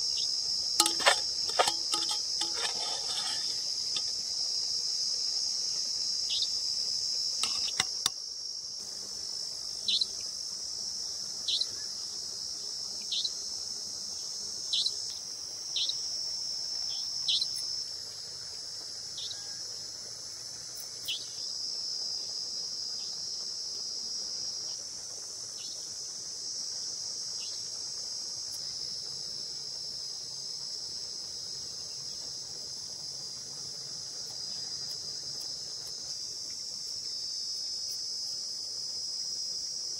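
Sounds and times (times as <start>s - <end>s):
crickets chorus: 0.0s - 39.9s.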